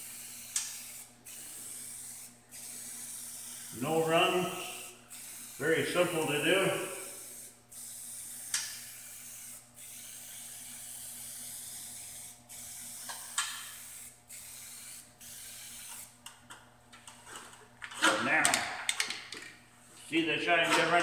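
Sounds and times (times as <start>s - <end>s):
aerosol spray can hissing: 0.0s - 16.2s.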